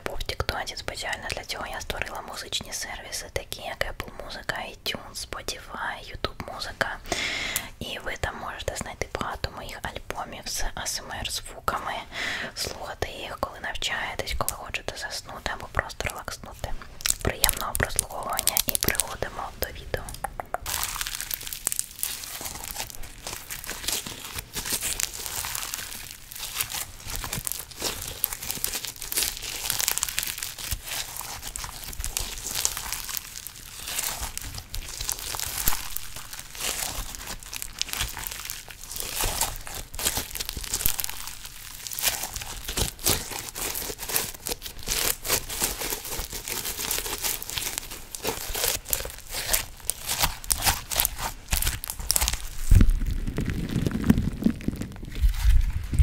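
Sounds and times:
slime squishing and crackling: 0:14.2 - 0:56.0.

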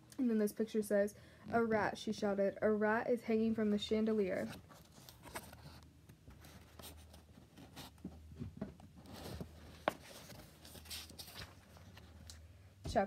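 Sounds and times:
paper rustling: 0:04.4 - 0:08.2, 0:09.0 - 0:12.3
book pages and cover clicking: 0:04.5 - 0:08.1, 0:09.0 - 0:12.4.

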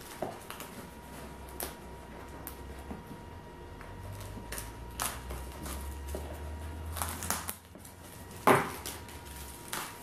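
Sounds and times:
scissors snipping plastic wrap: 0:00.0 - 0:01.8, 0:03.8 - 0:10.0.

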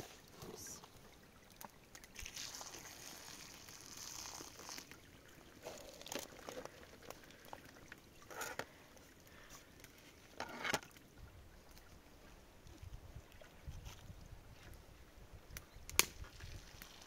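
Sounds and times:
water splashing through colander: 0:01.4 - 0:08.7.

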